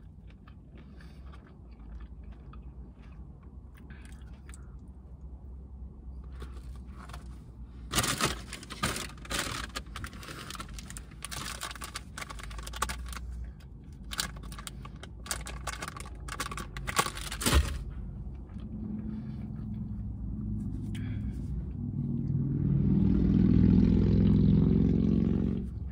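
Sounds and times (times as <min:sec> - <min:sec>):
paper and plastic wrapping crinkling: 0:07.9 - 0:13.3, 0:14.0 - 0:17.9.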